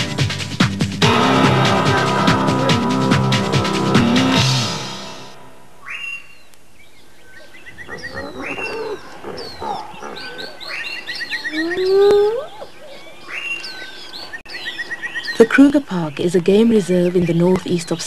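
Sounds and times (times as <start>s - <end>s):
birds chirping and whistling: 5.8s - 18.0s
loud rising animal call: 7.7s - 10.8s.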